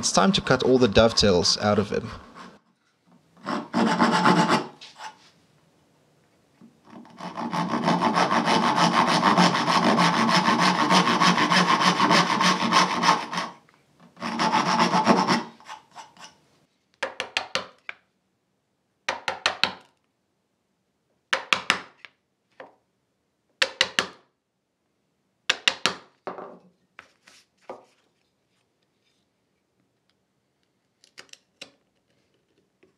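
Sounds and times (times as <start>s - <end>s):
back saw cutting wood: 0.0s - 2.6s, 3.4s - 5.2s, 6.9s - 13.6s, 14.2s - 16.4s
marking tool scratching wood: 0.0s - 2.6s, 3.4s - 5.2s, 6.9s - 13.6s, 14.2s - 16.4s.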